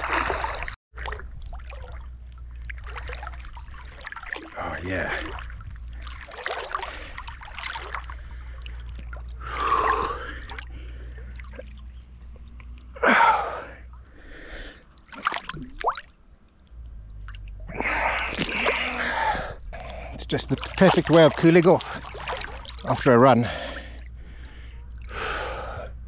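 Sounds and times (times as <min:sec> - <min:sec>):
small splashes: 0:00.0 - 0:25.6
water trickling: 0:00.0 - 0:25.7
swimmer breathing and gasping: 0:08.1 - 0:11.6, 0:17.7 - 0:20.1, 0:23.4 - 0:26.0.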